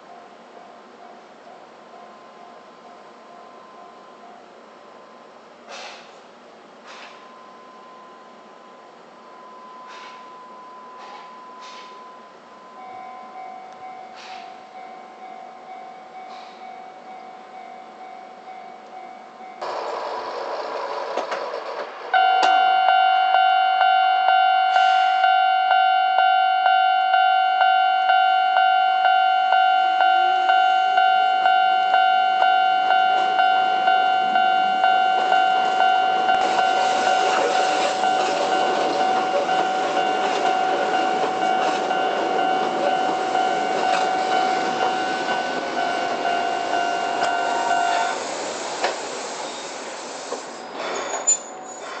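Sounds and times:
train running over track: 0:00.0 - 0:52.0
level crossing bell dinging: 0:22.2 - 0:48.1.

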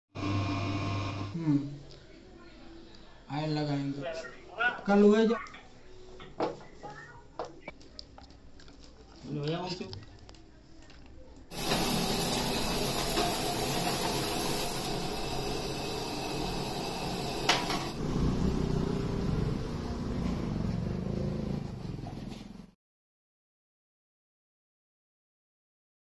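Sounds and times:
deep-frying sizzle in oil: 0:11.5 - 0:18.0.

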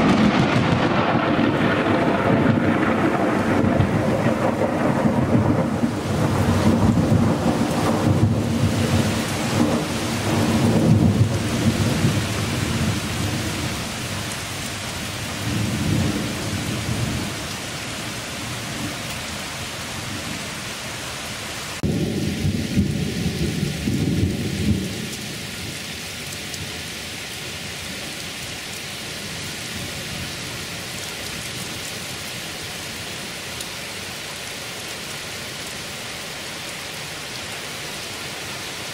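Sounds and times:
thunder rumbling: 0:00.0 - 0:19.0, 0:21.8 - 0:25.8
heavy rain: 0:00.0 - 0:38.9.

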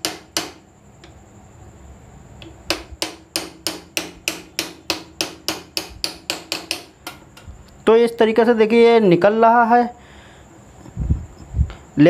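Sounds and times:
hammer tapping on metal: 0:00.0 - 0:01.2, 0:02.4 - 0:07.5.

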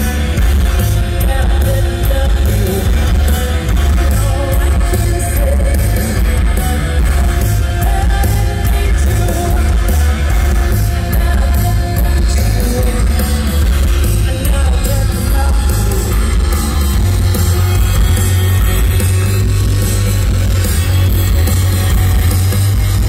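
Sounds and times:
drums: 0:00.0 - 0:23.0
electric guitar: 0:00.0 - 0:23.0
heavy bass: 0:00.0 - 0:23.0.

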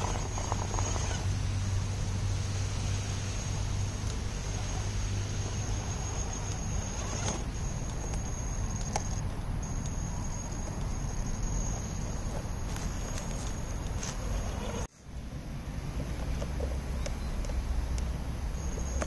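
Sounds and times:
high-pitched electric motor whine: 0:00.0 - 0:14.9.

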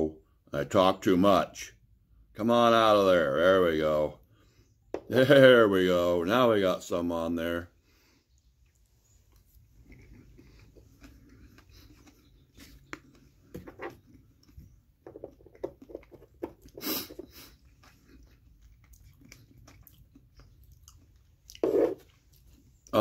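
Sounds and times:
man chewing food: 0:07.8 - 0:23.0.

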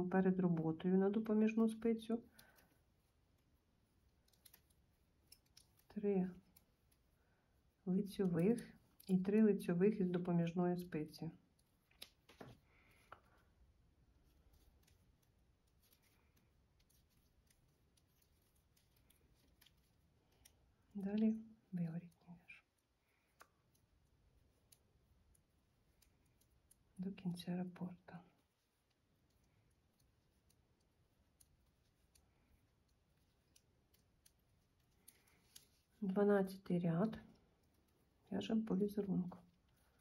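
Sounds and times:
knitting needles clicking: 0:00.4 - 0:07.2, 0:08.0 - 0:13.5, 0:14.1 - 0:40.0.

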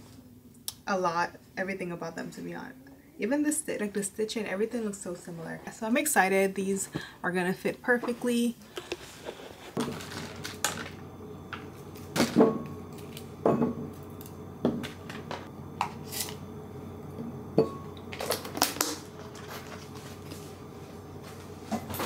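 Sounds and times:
steady low hum: 0:08.5 - 0:22.0.

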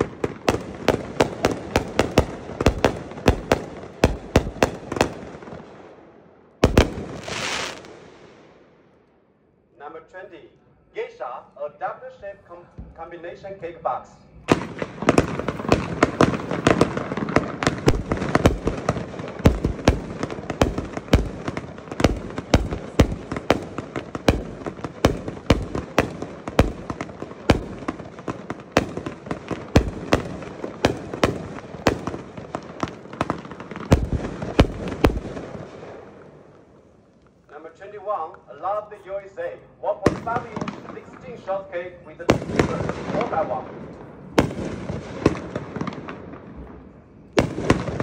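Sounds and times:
firework shots and bursts: 0:00.0 - 0:08.7, 0:14.5 - 0:36.4, 0:40.0 - 0:41.4, 0:42.3 - 0:46.5, 0:47.4 - 0:48.0.

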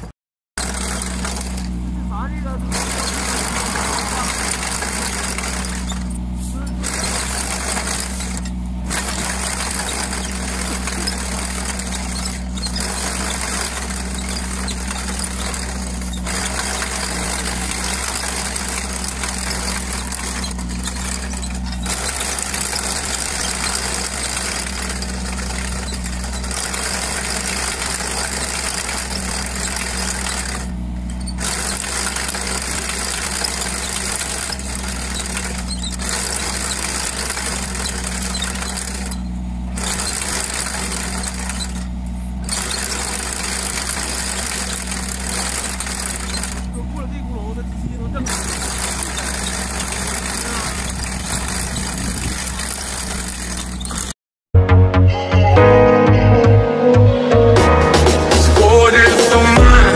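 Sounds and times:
trencher chain digging soil: 0:00.0 - 0:54.2
excavator engine hum: 0:00.0 - 0:54.7, 0:56.3 - 0:59.9.

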